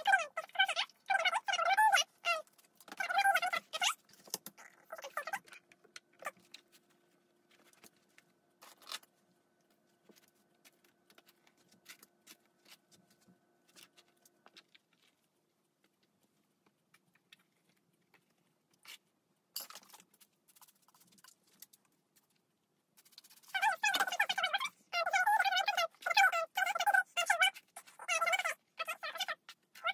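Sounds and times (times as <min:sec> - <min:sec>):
faint steady hum: 0:00.0 - 0:29.9.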